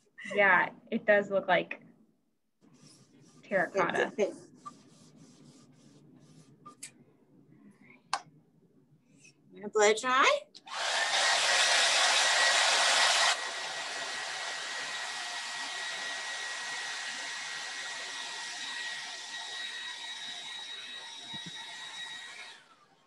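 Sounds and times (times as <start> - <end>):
hair dryer blowing: 10.6 - 22.8.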